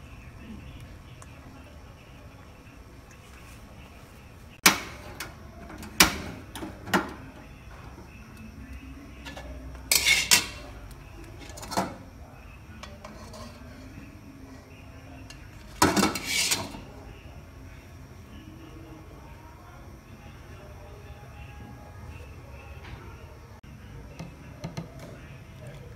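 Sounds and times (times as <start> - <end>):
metal spatula scraping a wok: 9.3 - 10.7, 12.9 - 13.9, 15.8 - 16.9.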